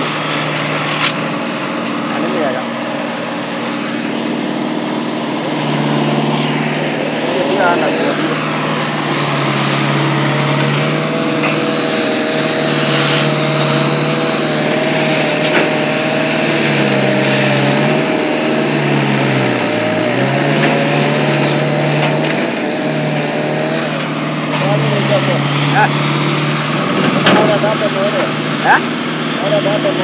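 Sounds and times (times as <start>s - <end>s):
log loader engine under load: 0.0s - 30.0s.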